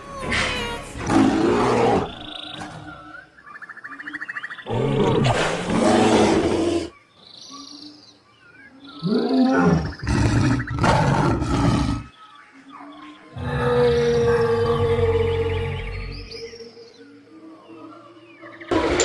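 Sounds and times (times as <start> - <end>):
large animal roaring: 1.0 - 2.3, 9.0 - 12.1, 13.3 - 16.3.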